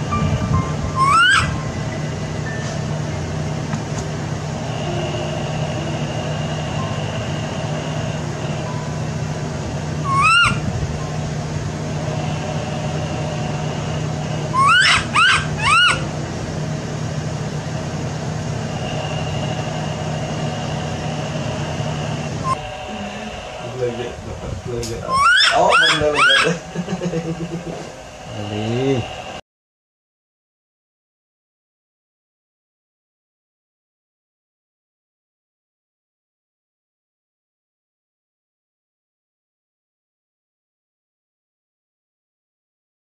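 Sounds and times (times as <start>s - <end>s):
steady low hum: 0.0s - 29.4s
infant monkey coo calls: 1.0s - 1.5s, 10.0s - 10.6s, 14.5s - 16.1s, 25.0s - 29.1s.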